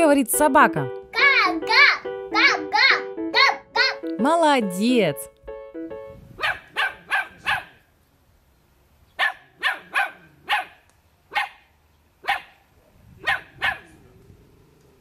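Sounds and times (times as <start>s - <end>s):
puppy barking: 1.2s - 4.0s, 6.4s - 7.8s, 9.2s - 11.6s, 12.2s - 12.6s, 13.2s - 13.9s.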